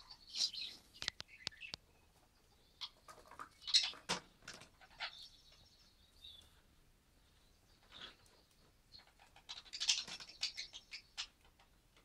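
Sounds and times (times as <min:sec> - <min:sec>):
budgerigar chirping: 0:09.0 - 0:11.4.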